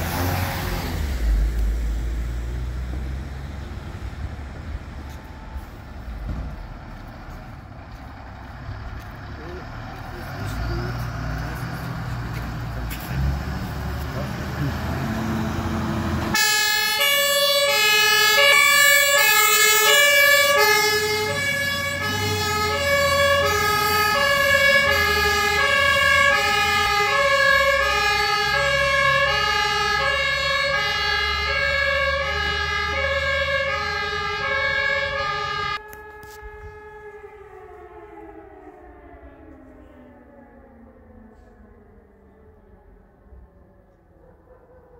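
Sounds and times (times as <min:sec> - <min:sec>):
siren winding down: 0:10.2 - 0:44.9
steady siren tone: 0:15.0 - 0:44.9
two-tone emergency horn: 0:16.3 - 0:24.2, 0:24.8 - 0:36.8.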